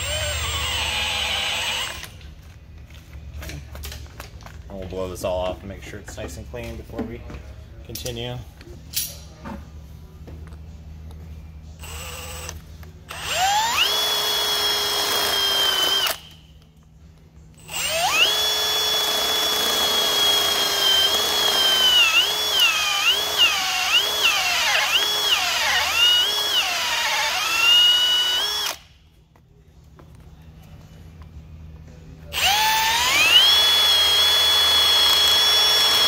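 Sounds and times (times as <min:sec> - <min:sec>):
drill whining: 0:00.0 - 0:02.1, 0:11.8 - 0:16.4, 0:17.6 - 0:28.9, 0:32.4 - 0:36.0.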